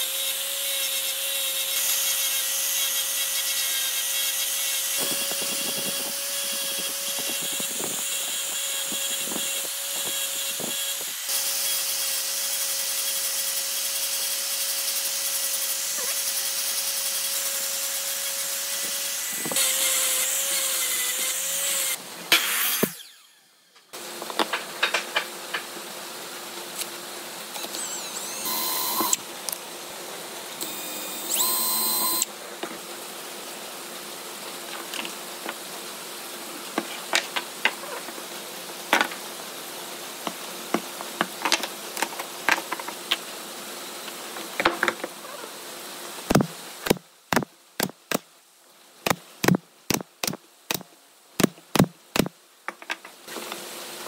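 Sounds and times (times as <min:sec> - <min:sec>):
workshop hum: 0:14.4 - 0:33.0, 0:46.3 - 0:48.2
high whining bursts: 0:22.8 - 0:23.8, 0:27.7 - 0:29.2.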